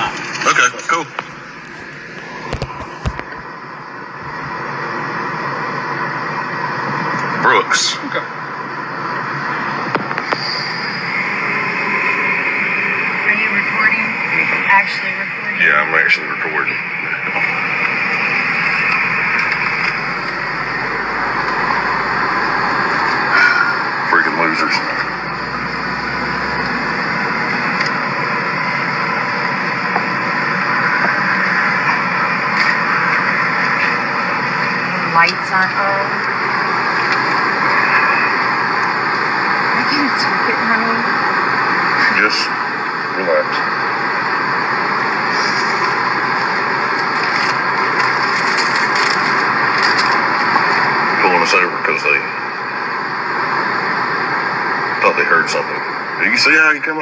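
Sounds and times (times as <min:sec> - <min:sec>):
vehicle road noise: 0:00.0 - 0:56.3
car interior road noise: 0:17.4 - 0:42.0.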